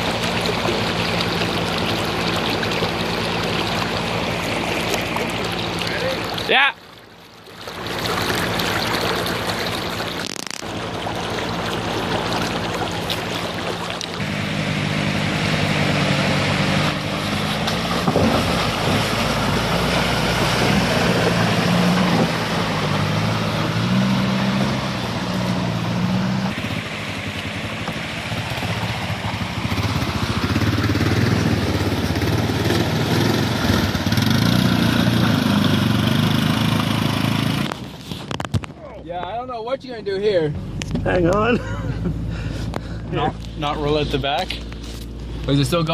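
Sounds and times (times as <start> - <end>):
atv engine working: 0.0 - 38.4, 40.5 - 45.9
water splashing around wheels: 0.0 - 45.9
pickup engine revving: 8.2 - 37.9.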